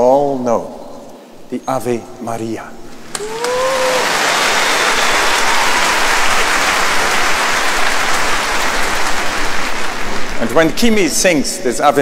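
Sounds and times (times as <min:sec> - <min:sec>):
audience applauding: 0:03.1 - 0:11.2.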